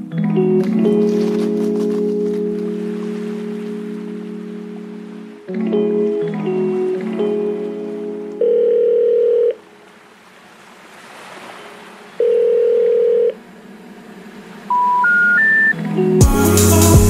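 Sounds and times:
telephone ringback tone: 0:08.4 - 0:09.6, 0:12.2 - 0:13.4, 0:14.7 - 0:15.8
rising intercept tones: 0:13.6 - 0:16.4.

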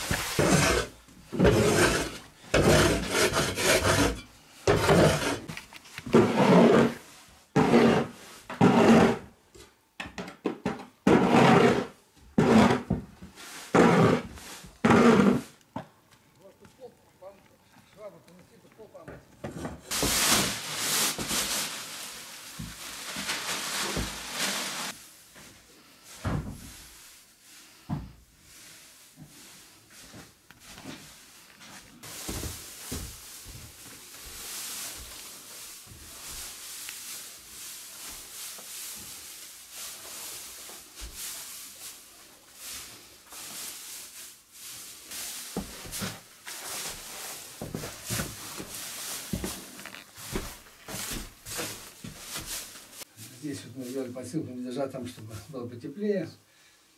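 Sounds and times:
dry hay rustling: 0:00.0 - 0:02.4, 0:19.9 - 0:54.3.

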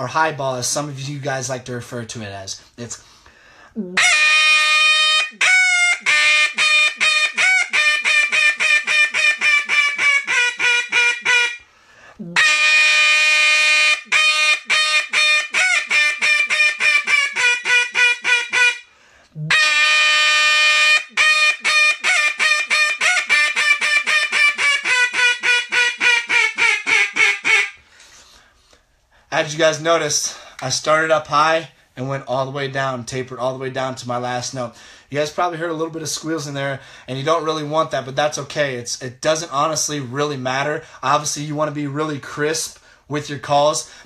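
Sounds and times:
duck call quacking: 0:04.0 - 0:11.6, 0:12.4 - 0:18.9, 0:19.5 - 0:27.8.

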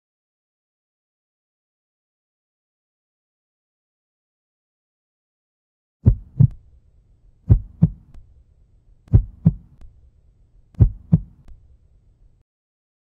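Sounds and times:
heartbeat thumps: 0:06.0 - 0:06.6, 0:07.5 - 0:08.2, 0:09.1 - 0:09.8, 0:10.8 - 0:11.5
faint low hum: 0:06.0 - 0:12.4.

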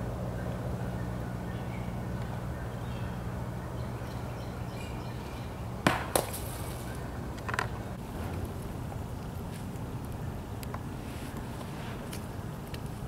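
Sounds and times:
low hum: 0:00.0 - 0:13.0
golf disc knocking hard surface: 0:05.9 - 0:06.8.

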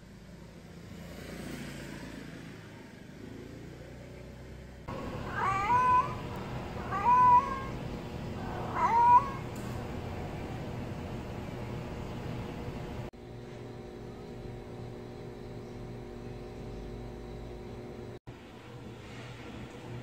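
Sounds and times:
cat meowing: 0:05.2 - 0:07.8, 0:08.4 - 0:09.6.

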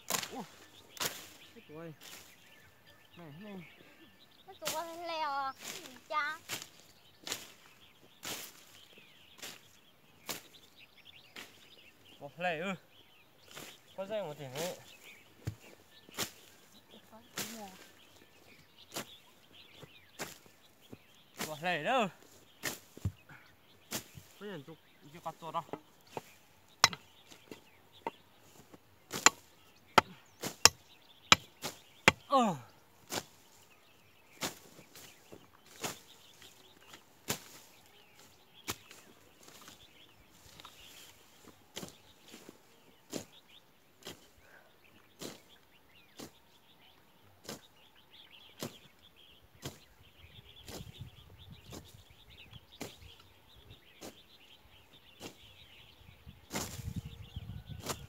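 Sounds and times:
hoes chopping into ground: 0:00.0 - 0:01.4, 0:22.6 - 0:23.2, 0:25.6 - 0:33.4, 0:37.3 - 0:37.7.

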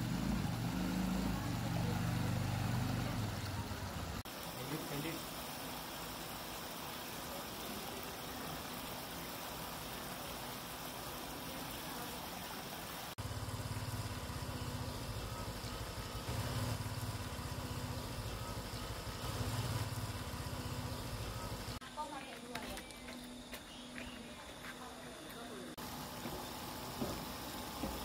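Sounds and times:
stream trickling over rocks: 0:03.2 - 0:16.2.

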